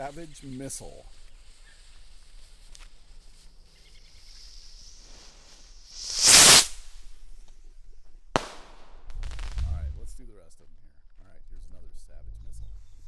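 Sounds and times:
firework fuse sizzling: 0.0 - 7.4
firework rushing whoosh: 4.4 - 7.2.

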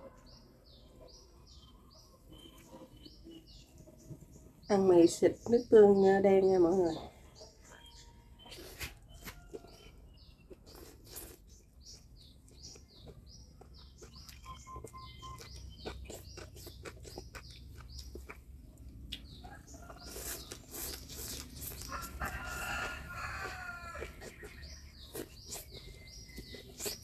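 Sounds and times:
small birds chirping: 0.0 - 27.0
person slurping and chewing noodles: 8.4 - 19.2, 19.9 - 27.0.

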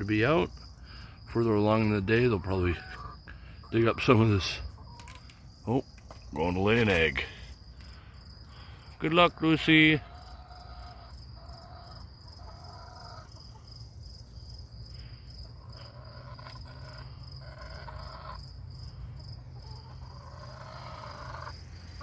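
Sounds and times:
crickets chirring: 0.0 - 22.0
hen calling: 15.6 - 18.4, 19.6 - 22.0.

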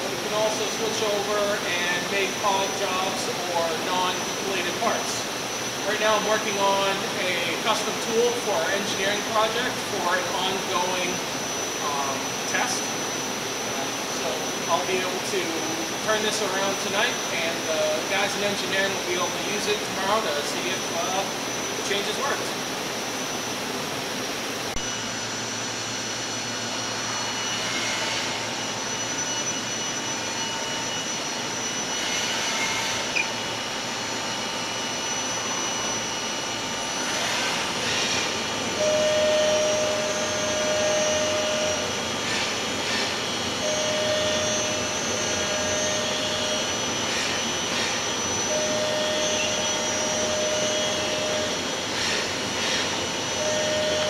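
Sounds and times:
machine whir with high whine: 0.0 - 54.0
machine hissing: 27.1 - 54.0
mid-pitched tone: 38.7 - 42.0, 43.6 - 46.8, 48.4 - 51.7, 53.3 - 54.0.

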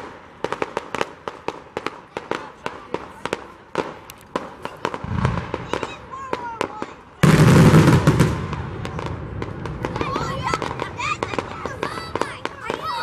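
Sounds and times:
fireworks cracking and popping: 0.0 - 13.0
low firework boom: 5.0 - 6.0, 7.2 - 11.6.

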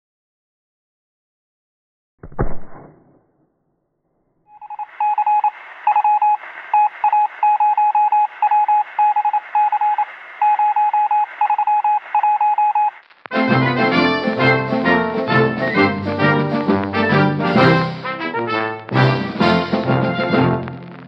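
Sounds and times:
morse code beeps: 4.5 - 13.0
faint radio hiss: 4.6 - 13.3.

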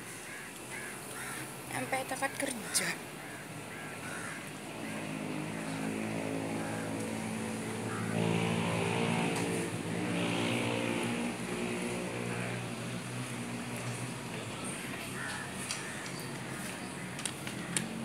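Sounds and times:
vehicle engine running: 4.0 - 18.0.

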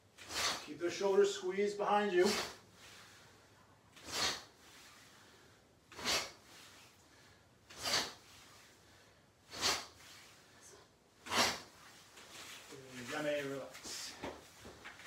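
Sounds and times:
sharp forceful exhalations: 0.2 - 0.7, 2.2 - 12.0.

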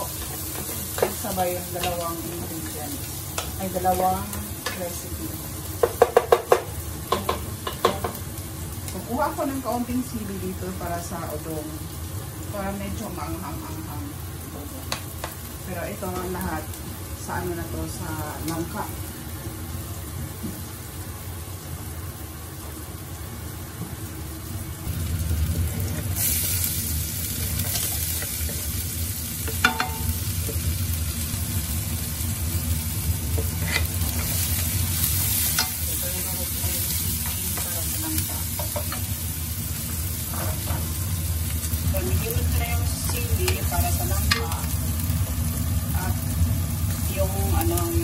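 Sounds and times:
food sizzling in hot oil: 0.0 - 48.0
spatula scraping and tapping pan: 0.2 - 2.0, 33.4 - 34.4.

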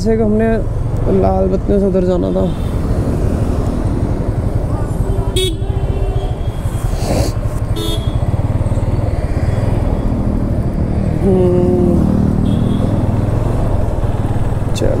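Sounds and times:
motorcycle engine: 0.0 - 15.0
road rumble: 0.0 - 15.0
vehicle horns honking: 5.0 - 7.0, 7.7 - 8.5, 12.4 - 13.1.

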